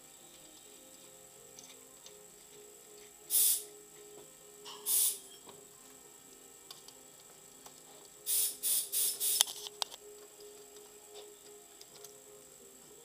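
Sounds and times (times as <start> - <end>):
ratchet wrench ratcheting: 8.3 - 9.6.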